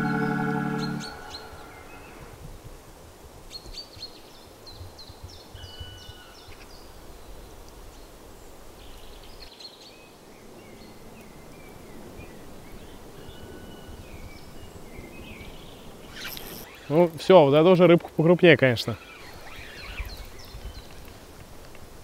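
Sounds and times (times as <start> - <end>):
songbirds chirping: 0.0 - 2.3, 3.5 - 21.2.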